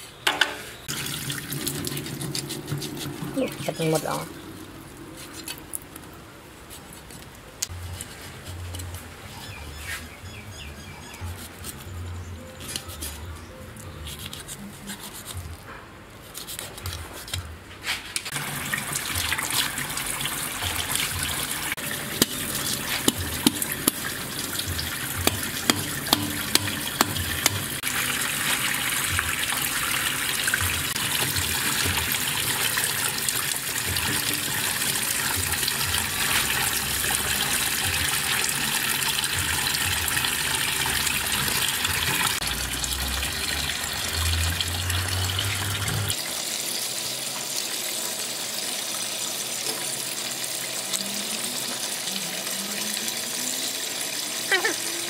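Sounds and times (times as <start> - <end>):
tap water pouring into sink: 0.9 - 3.4, 18.4 - 46.2
sharp knocks: 24.7 - 27.8.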